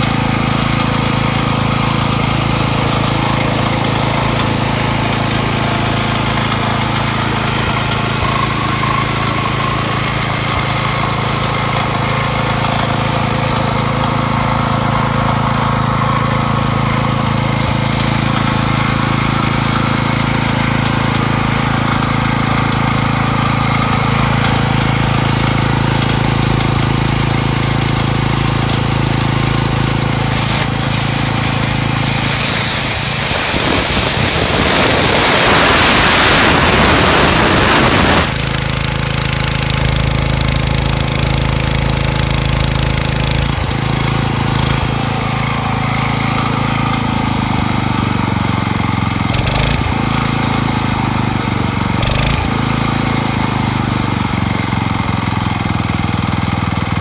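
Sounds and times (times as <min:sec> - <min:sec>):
air compressor engine running: 0:00.0 - 0:57.0
compressed air hissing: 0:30.2 - 0:38.4.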